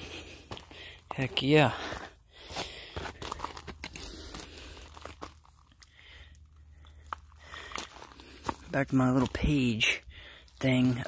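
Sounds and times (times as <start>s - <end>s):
handling clicks and rustles: 3.0s - 9.7s.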